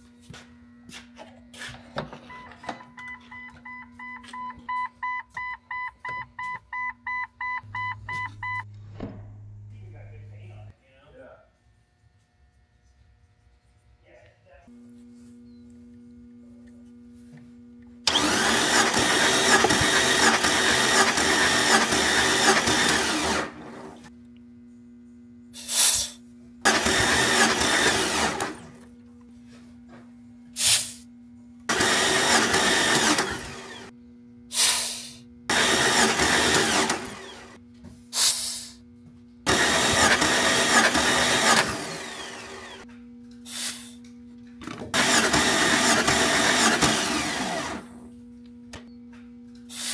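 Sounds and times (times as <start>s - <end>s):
engine starter cranking: 18.0s - 24.0s, 26.6s - 28.8s, 35.5s - 37.6s, 39.5s - 42.8s, 44.9s - 48.0s
short sharp hisses: 25.6s - 26.2s, 30.6s - 31.1s, 34.5s - 35.2s, 38.1s - 38.8s, 43.5s - 44.0s.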